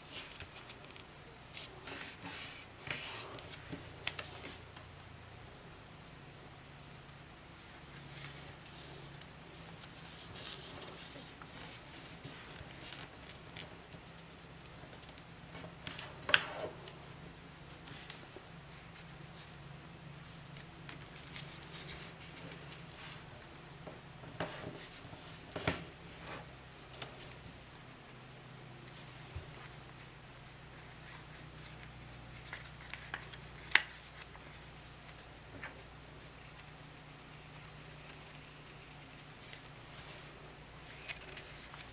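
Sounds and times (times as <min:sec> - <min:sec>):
low steady hum: 0:00.0 - 0:41.9
paper rustling and scraping: 0:07.6 - 0:14.1, 0:39.4 - 0:41.9.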